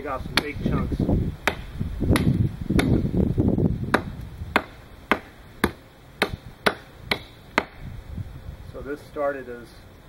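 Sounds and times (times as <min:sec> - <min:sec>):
hatchet chopping wood: 0:00.3 - 0:00.8, 0:01.4 - 0:03.1, 0:03.9 - 0:07.8.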